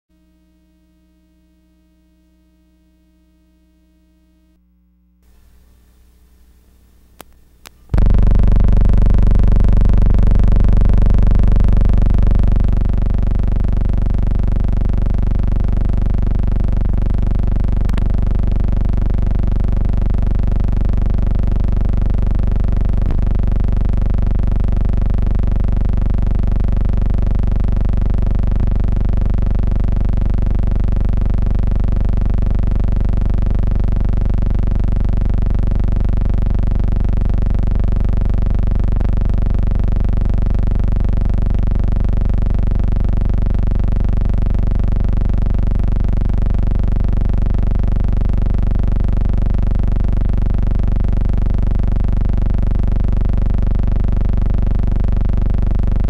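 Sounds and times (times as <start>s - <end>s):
faint steady tones: 0.1s - 24.4s
synthesizer drone: 0.2s - 4.6s, 7.9s - 31.5s.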